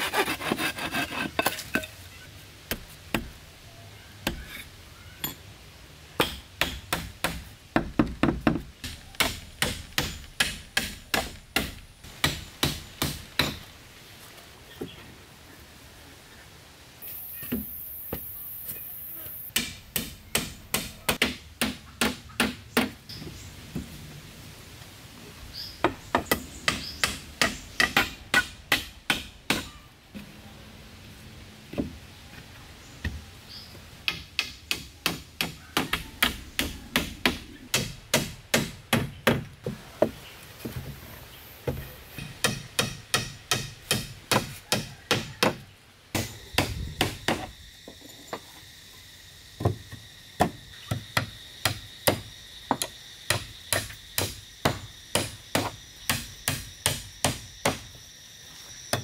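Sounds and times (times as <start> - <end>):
hand tool striking wood: 6.2 - 13.6, 41.7 - 45.6.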